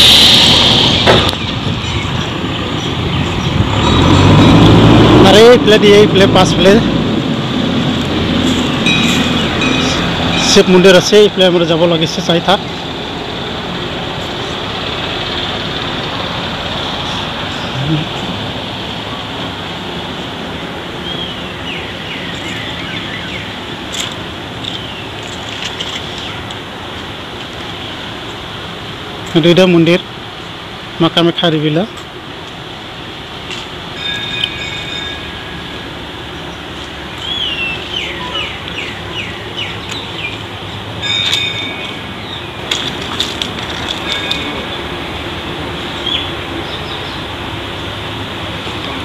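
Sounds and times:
steady rushing noise: 0.0s - 38.0s
small birds chirping: 21.0s - 23.8s, 36.3s - 40.9s, 45.9s - 47.3s
bird whistling calls: 37.2s - 40.4s.

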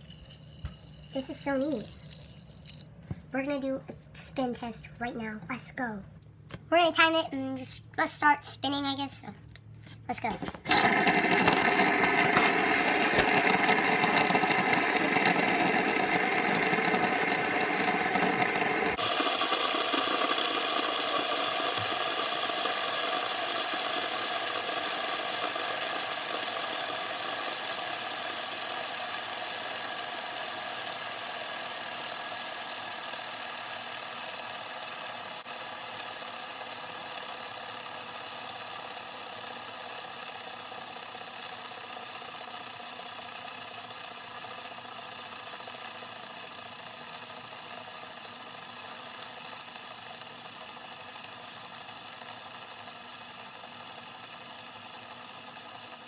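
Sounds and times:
fidget spinners whirring: 0.0s - 5.3s, 10.1s - 56.0s.

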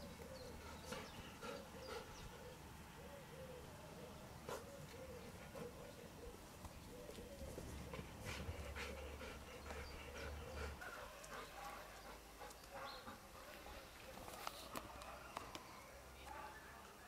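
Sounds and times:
dog panting and sniffing: 0.2s - 2.3s, 4.4s - 6.0s, 7.6s - 14.1s.

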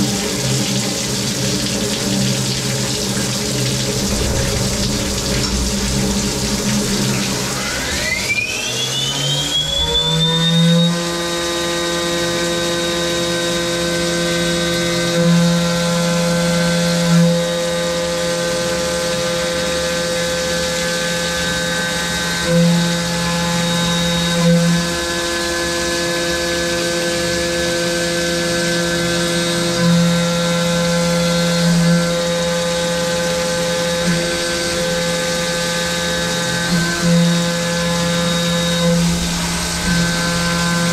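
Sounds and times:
milling machine whine: 3.0s - 14.1s, 25.2s - 40.9s.

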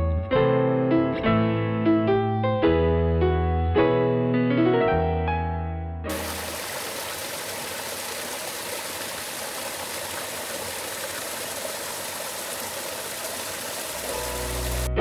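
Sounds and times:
stream splashing over rocks: 6.1s - 14.9s.

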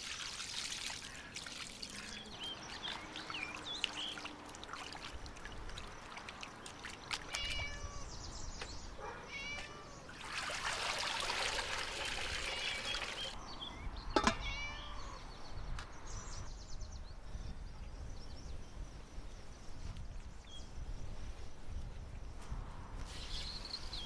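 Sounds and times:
water pouring into metal basin: 0.0s - 7.3s, 10.1s - 13.4s
cat meowing: 7.3s - 8.1s, 9.0s - 10.0s, 14.3s - 15.2s.

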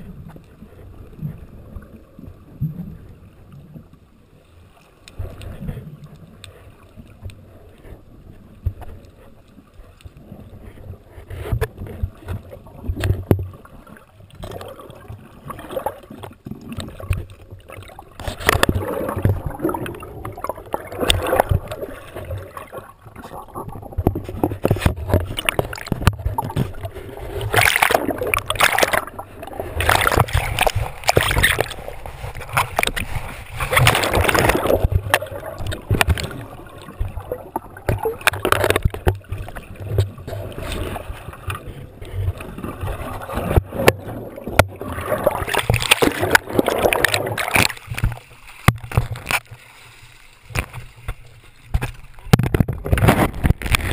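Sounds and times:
sea water sloshing and splashing: 0.0s - 53.9s.

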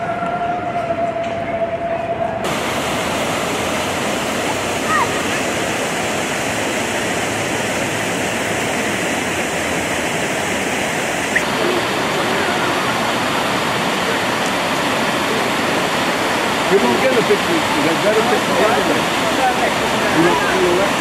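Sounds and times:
fountain water splashing: 2.4s - 21.0s.

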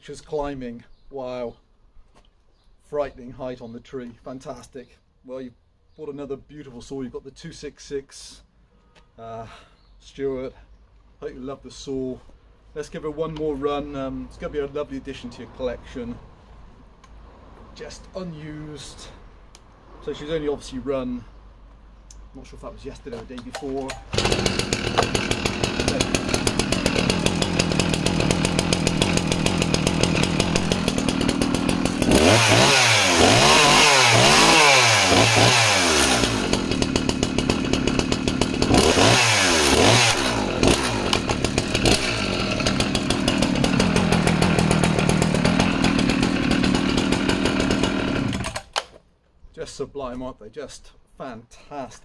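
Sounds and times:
chainsaw idling and revving: 23.4s - 48.8s.

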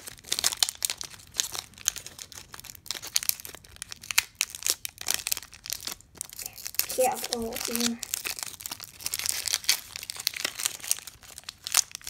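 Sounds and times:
foil wrapper crinkling: 0.0s - 12.0s.

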